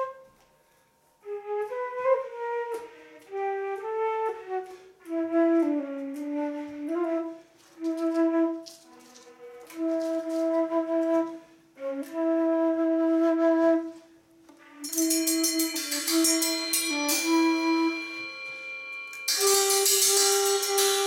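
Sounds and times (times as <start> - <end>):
flute playing low notes: 0.0 - 0.4, 1.2 - 21.0
cymbals ringing: 14.6 - 21.0.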